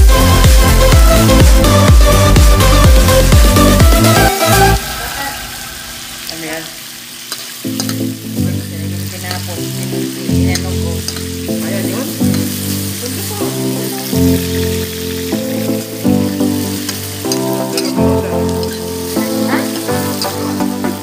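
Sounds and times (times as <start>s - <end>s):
background music with steady beat: 0.0s - 6.2s, 7.7s - 21.0s
onions and garlic sizzling in wok: 0.0s - 21.0s
metal ladle scraping pan: 16.6s - 20.6s.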